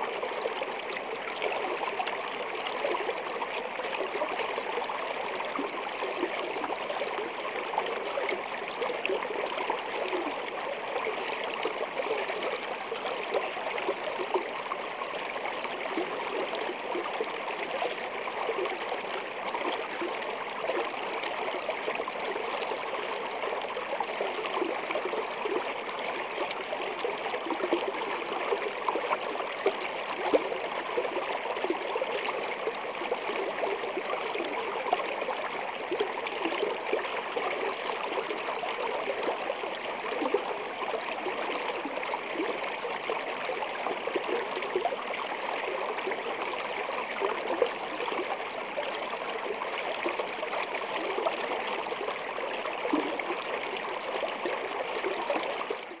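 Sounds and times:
stream running over stones: 0:00.0 - 0:56.0.

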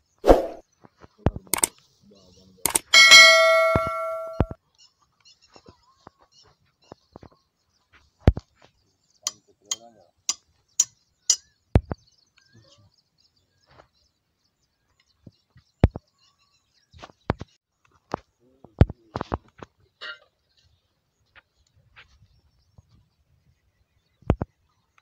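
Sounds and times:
birds chirping faintly: 0:00.0 - 0:25.0
high metallic clinks: 0:02.7 - 0:04.6
knocks on metal: 0:03.0 - 0:04.6.

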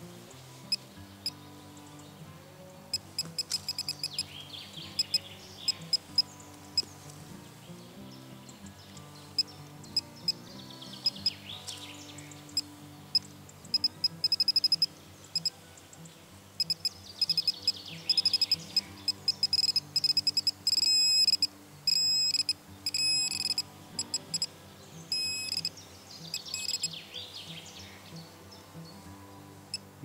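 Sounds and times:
soft background music: 0:00.0 - 0:30.0
metal detector pinpointer beeping: 0:02.9 - 0:04.2, 0:05.0 - 0:06.9, 0:11.0 - 0:11.4, 0:13.1 - 0:15.5, 0:16.6 - 0:24.5, 0:25.1 - 0:25.7, 0:26.3 - 0:26.9.

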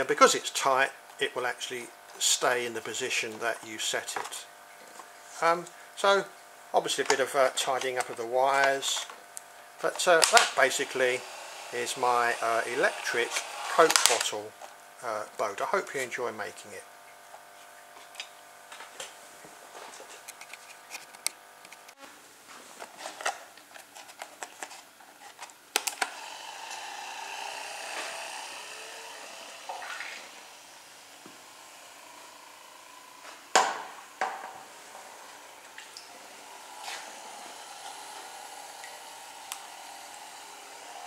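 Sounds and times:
small electric motor whirring: 0:10.4 - 0:14.4, 0:26.0 - 0:41.0.

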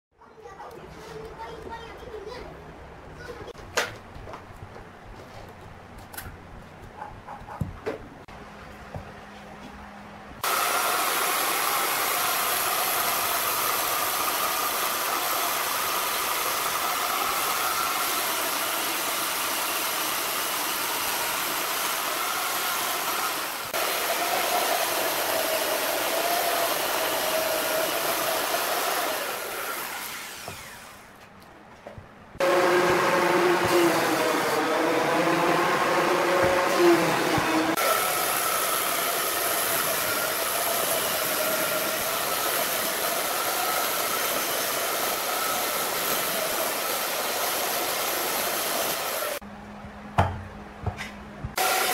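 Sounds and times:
electric chainsaw cutting wood: 0:10.4 - 0:31.1, 0:32.4 - 0:49.4, 0:51.6 - 0:51.9.

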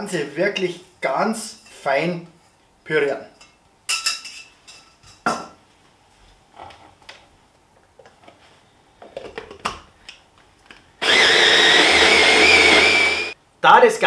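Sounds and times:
stick blender whine: 0:11.0 - 0:13.4.

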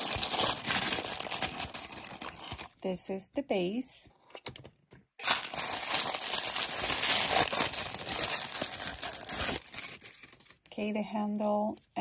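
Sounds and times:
paper crinkling and rustling: 0:00.0 - 0:02.7, 0:05.2 - 0:10.7.

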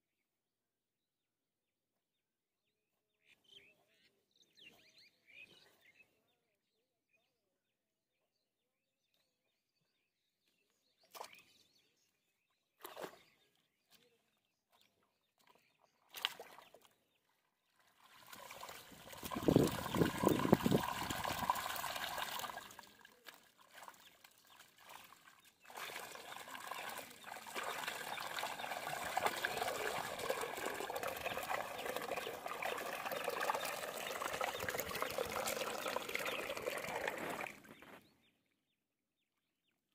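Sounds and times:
water pouring and trickling: 0:17.8 - 0:38.0.

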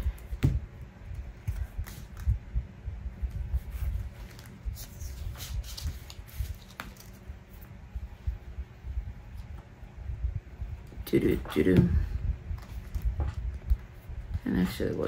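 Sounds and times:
paper crinkling and rustling: 0:03.6 - 0:07.3.

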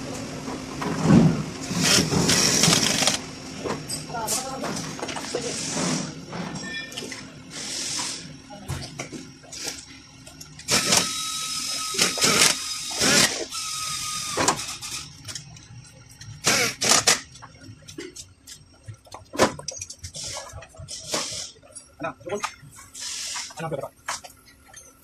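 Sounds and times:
short hissing bursts: 0:07.5 - 0:08.3, 0:20.2 - 0:21.6, 0:22.9 - 0:23.6.

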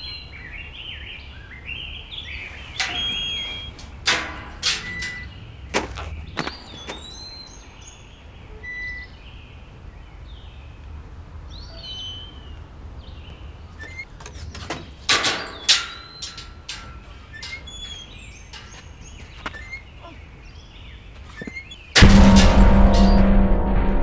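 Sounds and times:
birds chirping and whistling: 0:00.0 - 0:09.6, 0:11.5 - 0:22.0
metal gate clanking and rattling: 0:02.4 - 0:05.8, 0:13.3 - 0:19.8, 0:21.3 - 0:24.0.

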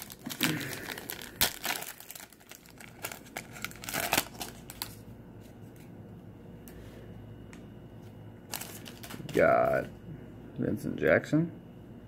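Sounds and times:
foil pack tearing: 0:00.0 - 0:05.0, 0:08.5 - 0:09.5
foil wrapper crinkling: 0:00.0 - 0:05.1, 0:08.5 - 0:09.8.

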